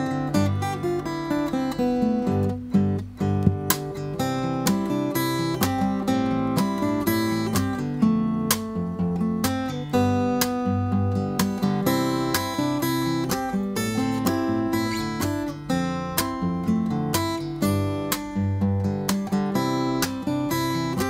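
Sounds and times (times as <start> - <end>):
fingerstyle acoustic guitar: 0.0 - 21.0.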